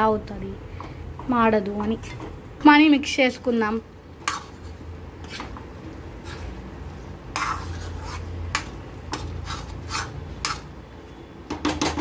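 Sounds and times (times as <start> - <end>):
metal spatula scraping pan: 4.2 - 10.8.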